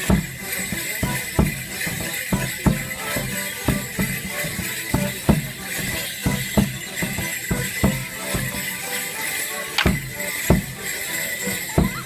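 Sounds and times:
folk band playing dance tune: 0.0s - 12.0s.

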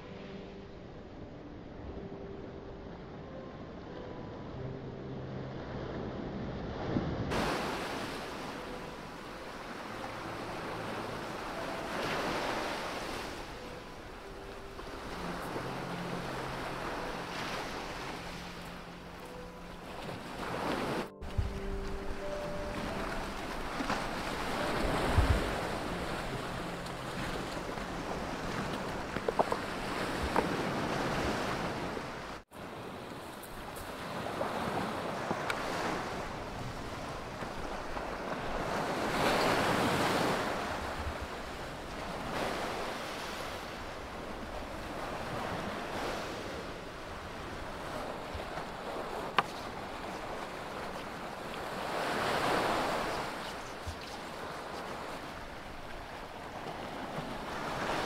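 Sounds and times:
sea surf washing onto rocky shore: 7.3s - 13.4s.

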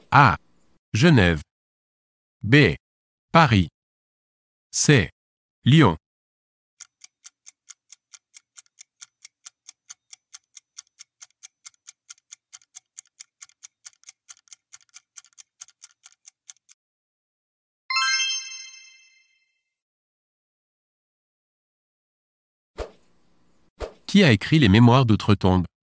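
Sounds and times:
bright chime: 17.9s - 19.5s.

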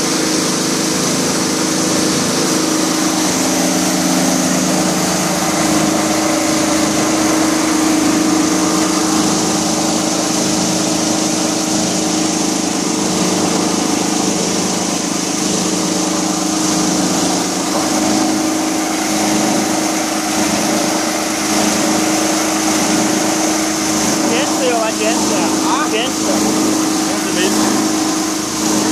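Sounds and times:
electric motor droning: 11.7s - 28.9s.

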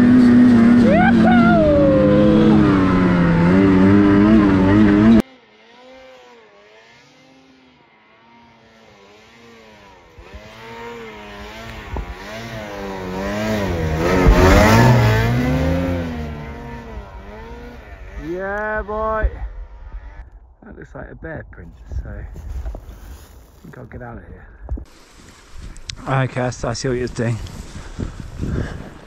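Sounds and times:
snowmobile engine revving: 0.0s - 20.3s
distant snowmobile passing: 0.0s - 20.6s.

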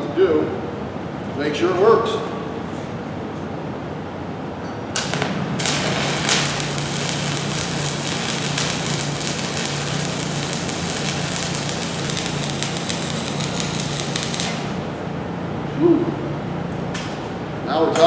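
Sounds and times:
welding arc crackling: 5.0s - 15.2s
low hum: 5.0s - 16.5s.

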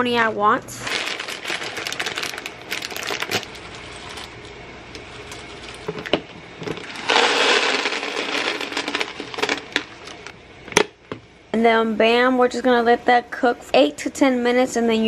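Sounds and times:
dry pasta pouring: 0.8s - 4.3s, 6.8s - 10.3s
plastic bag crinkling: 0.8s - 4.5s, 6.8s - 10.3s.

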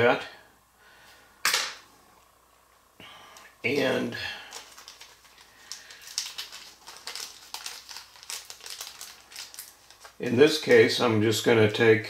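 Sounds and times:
plastic bag crinkling: 3.6s - 11.0s.

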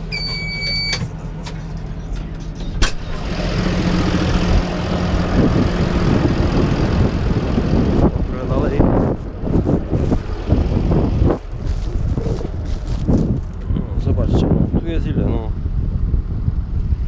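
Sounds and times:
tractor diesel engine running: 0.0s - 17.0s
electronic warning beep: 0.1s - 1.1s.

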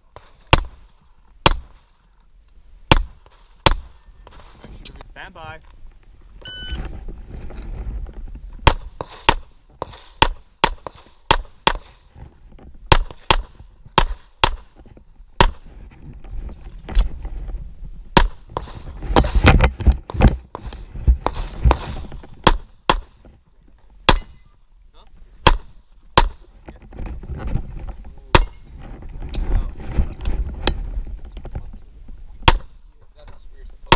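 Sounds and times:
shot timer beep: 6.4s - 6.8s.

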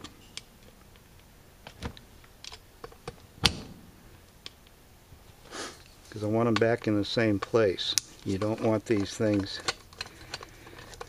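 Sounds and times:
metal pick tapping and scraping metal: 6.1s - 11.0s.

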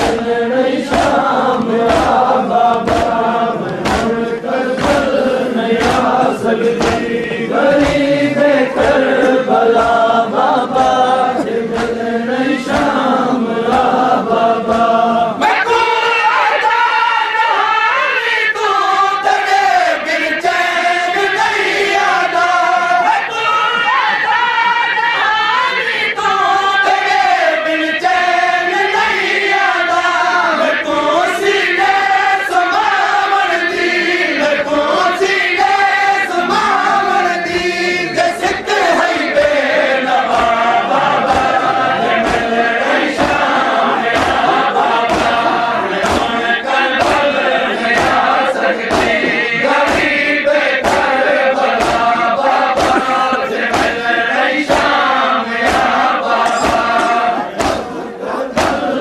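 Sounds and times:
hands slapping chests: 0.0s - 12.0s, 12.6s - 14.0s, 40.2s - 58.0s, 58.6s - 58.9s
men chanting together: 0.0s - 59.0s.

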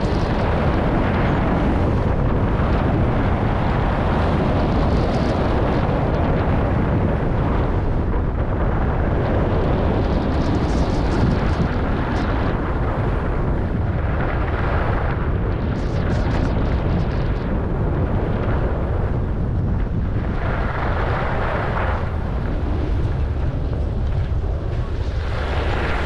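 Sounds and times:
wind rumble on microphone: 0.0s - 26.0s.

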